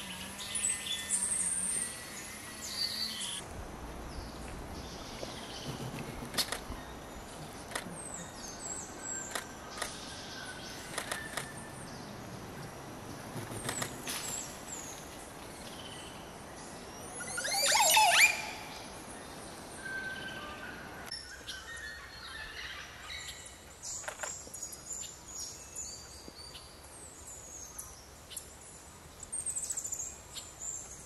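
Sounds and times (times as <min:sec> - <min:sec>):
birds chirping and whistling: 0:00.0 - 0:03.4, 0:17.0 - 0:18.9
sharp clicks: 0:06.0 - 0:06.8, 0:07.6 - 0:07.9, 0:09.2 - 0:10.0, 0:10.9 - 0:11.6, 0:13.4 - 0:14.3.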